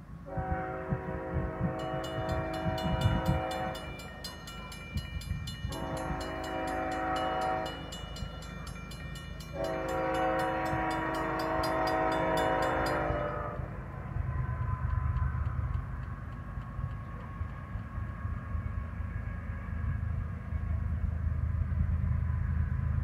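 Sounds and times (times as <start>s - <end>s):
locomotive air horn blasts: 0.3s - 4.3s, 5.6s - 8.2s, 9.5s - 13.7s.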